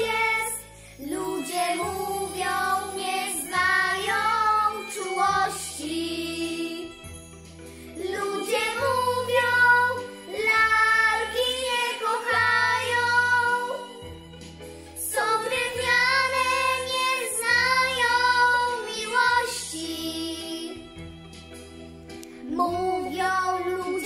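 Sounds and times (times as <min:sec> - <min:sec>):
girls singing together: 0:00.0 - 0:07.0, 0:08.0 - 0:14.0, 0:15.0 - 0:20.8.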